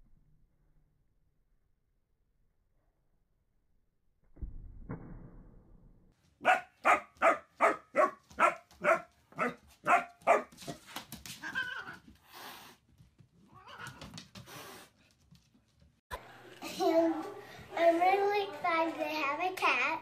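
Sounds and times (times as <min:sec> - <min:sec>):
puppy barking: 0:06.4 - 0:10.8.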